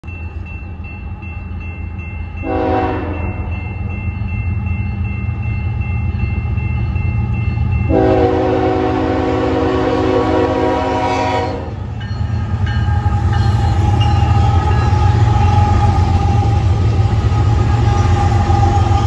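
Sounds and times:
crossing bell ringing: 0.0 - 19.0
diesel locomotive engine rumble: 0.0 - 19.0
train horn blasts: 2.4 - 3.5, 7.9 - 11.8, 12.9 - 19.0.

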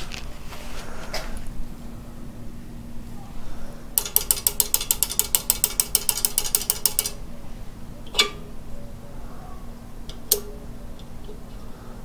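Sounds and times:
rapid ratchet clicks: 4.0 - 7.2.

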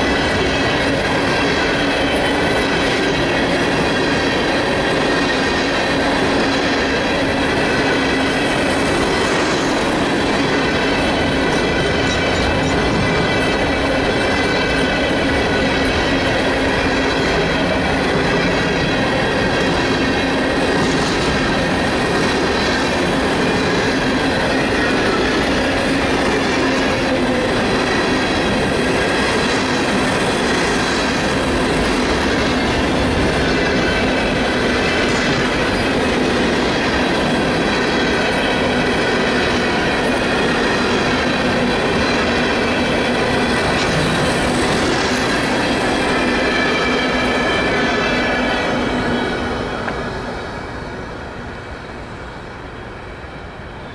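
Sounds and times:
train wheels rumbling on rails: 0.0 - 53.9.

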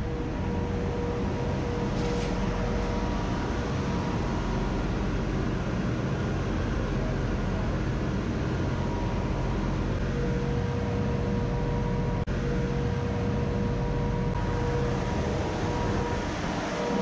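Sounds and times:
faint steady whine: 0.0 - 17.0
ship engine room machinery hum: 0.0 - 17.0.

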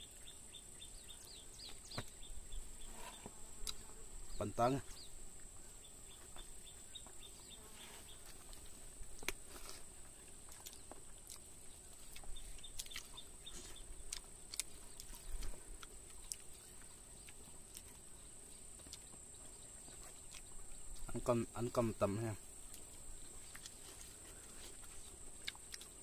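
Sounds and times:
eating by hand clicks and smacks: 8.5 - 18.1, 18.7 - 19.3, 19.9 - 21.2, 22.7 - 24.1, 24.7 - 26.0.

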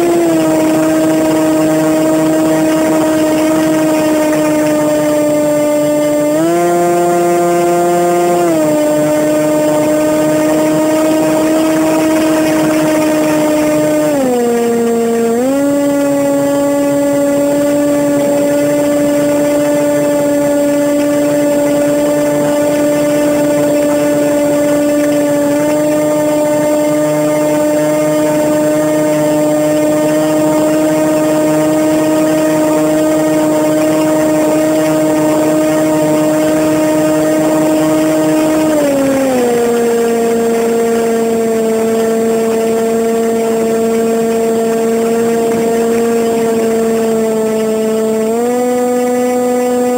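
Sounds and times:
model aircraft motor droning: 0.0 - 49.9.

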